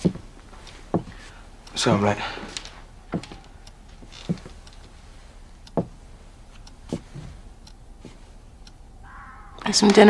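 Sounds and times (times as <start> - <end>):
soft knocks: 0.9 - 1.3.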